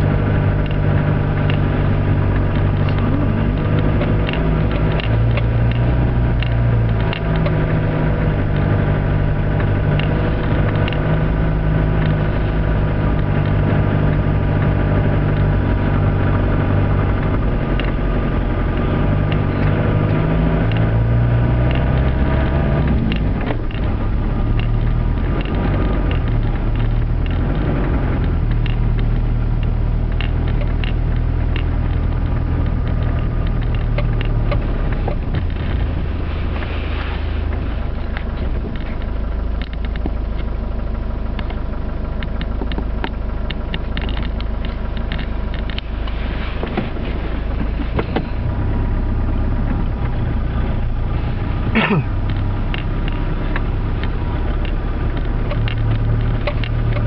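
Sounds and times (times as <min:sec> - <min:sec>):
diesel engine running: 0:00.0 - 0:57.0.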